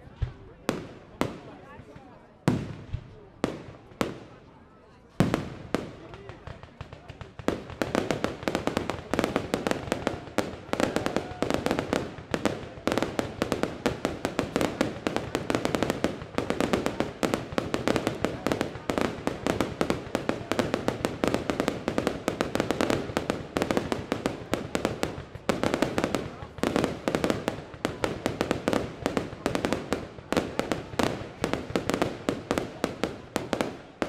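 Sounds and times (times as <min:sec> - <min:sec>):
fireworks bangs and crackles: 0:00.0 - 0:34.0.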